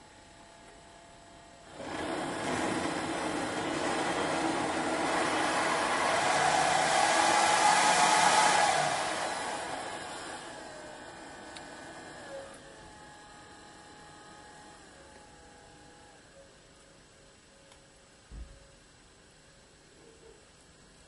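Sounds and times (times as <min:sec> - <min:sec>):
hair dryer fan blowing air: 0:01.7 - 0:16.0.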